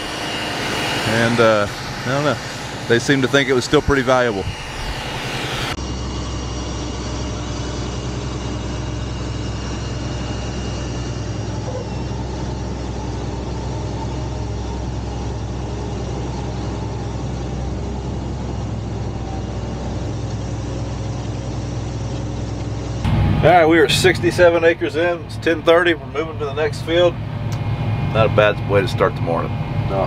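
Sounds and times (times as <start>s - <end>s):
faint high whine: 0.0s - 22.2s, 22.9s - 30.0s
tractor engine running under load: 5.8s - 30.0s.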